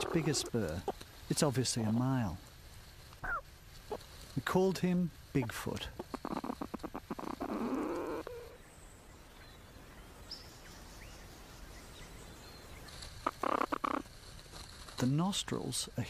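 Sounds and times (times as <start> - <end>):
faint bird chirps: 5.9 - 14.1.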